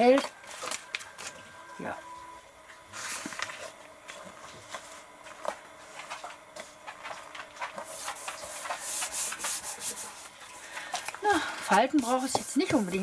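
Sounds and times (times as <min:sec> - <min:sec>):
hand rubbing over paper: 0:07.8 - 0:10.4, 0:11.7 - 0:13.0.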